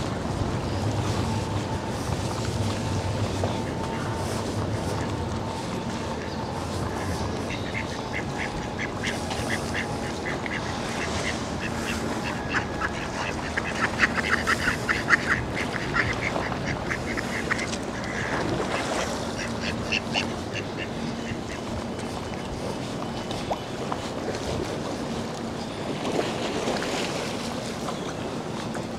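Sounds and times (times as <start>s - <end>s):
ducks quacking: 3.2s - 21.8s.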